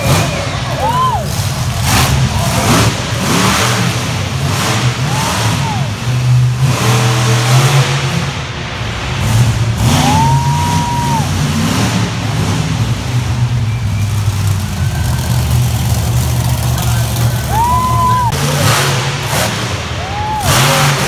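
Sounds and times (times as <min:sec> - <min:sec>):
truck engines revving: 0:00.0 - 0:21.0.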